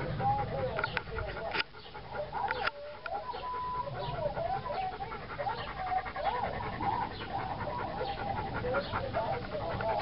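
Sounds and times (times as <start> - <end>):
dog panting: 0.0 - 10.0
dog whining: 2.1 - 10.0.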